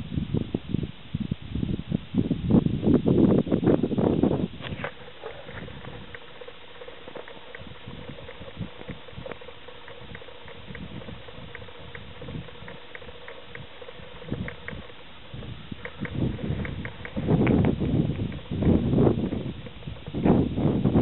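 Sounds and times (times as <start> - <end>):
faint steady hum: 0.0 - 21.0
loud rustle: 4.4 - 21.0.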